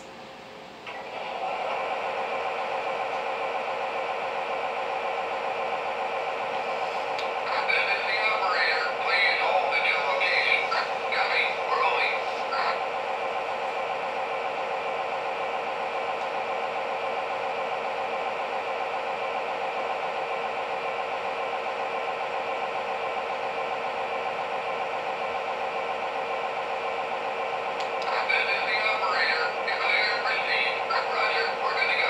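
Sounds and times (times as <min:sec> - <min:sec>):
diesel idling from small speaker: 0:01.1 - 0:32.0.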